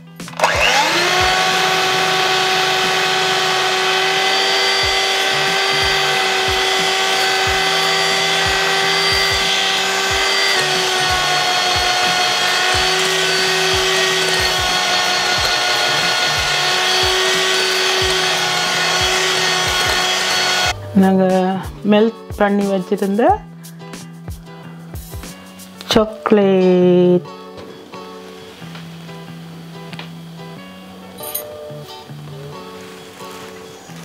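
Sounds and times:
electric hand mixer whine: 0.3s - 20.8s.

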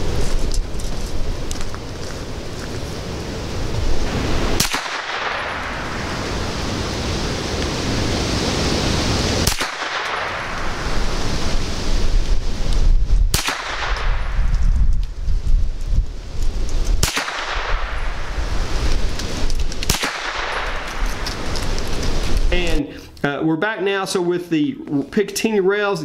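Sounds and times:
gunshots: 4.1s - 6.3s, 9.4s - 10.8s, 13.3s - 14.4s, 17.0s - 18.2s, 19.9s - 21.2s.

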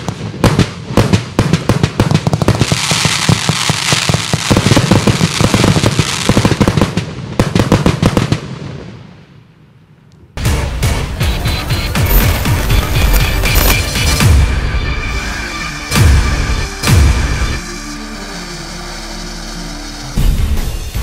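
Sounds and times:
fireworks launching and bursting: 0.0s - 9.6s, 10.4s - 21.0s
fireworks hiss: 2.2s - 7.2s, 11.5s - 14.3s, 16.6s - 21.0s.

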